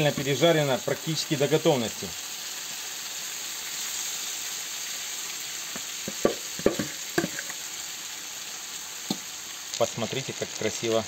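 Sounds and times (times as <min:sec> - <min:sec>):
food sizzling in hot oil: 0:00.0 - 0:11.0
metal skimmer knocking pot: 0:06.1 - 0:07.4.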